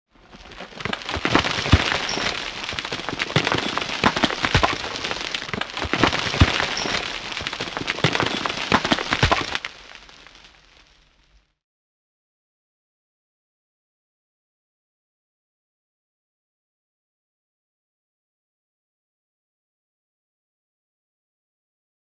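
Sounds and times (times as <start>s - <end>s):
crackling crumbling debris: 0.1s - 11.6s.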